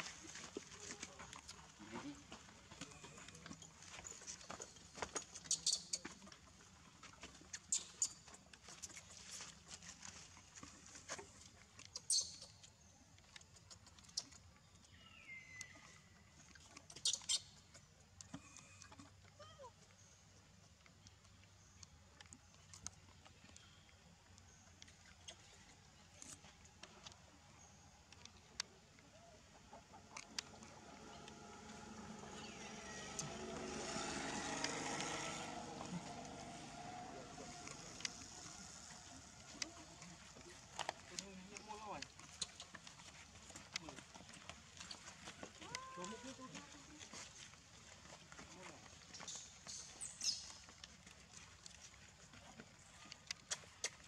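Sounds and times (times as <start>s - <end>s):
monkeys scrabbling and rustling: 0.0s - 6.5s, 7.2s - 14.6s, 16.6s - 18.5s, 29.4s - 54.0s
small clicks and scratches: 7.3s - 14.9s
vehicle engine passing by: 30.4s - 39.5s.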